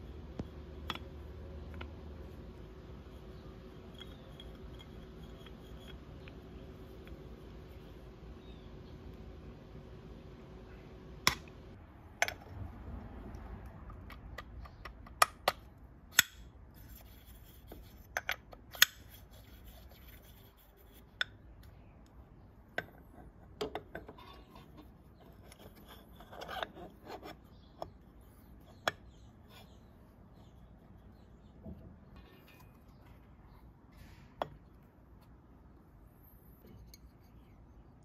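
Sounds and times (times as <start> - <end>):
metal rubbing: 2.2 - 7.9.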